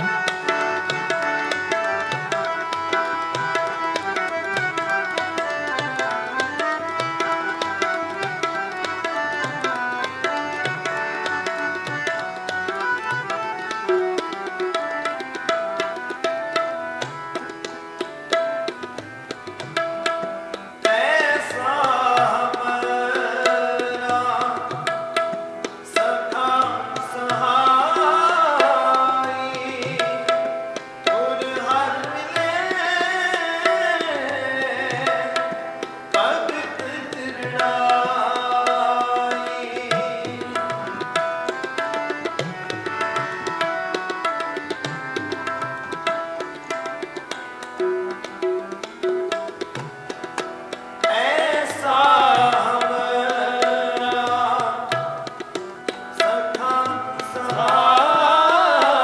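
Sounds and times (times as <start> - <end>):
harmonium chords: 0.0 - 59.0
tabla pattern: 0.0 - 59.0
man singing: 20.8 - 25.2, 25.8 - 41.6, 51.0 - 55.4, 56.1 - 59.0.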